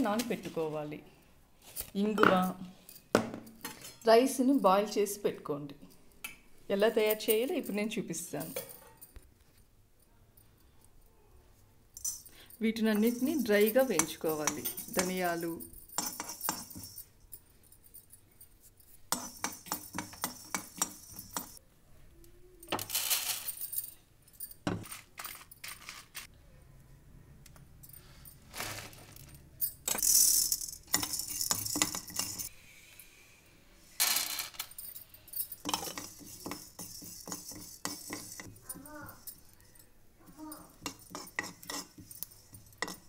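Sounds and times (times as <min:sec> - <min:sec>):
steel spoon scraping pan: 0:13.0 - 0:17.1, 0:35.6 - 0:39.5, 0:40.7 - 0:43.0.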